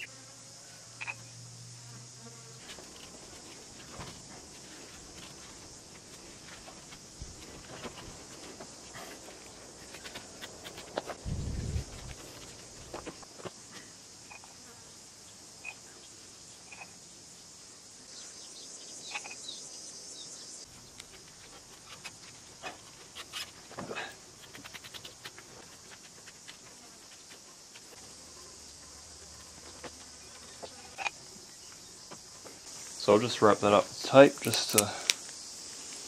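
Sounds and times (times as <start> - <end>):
insects chirring: 0.0 - 36.0.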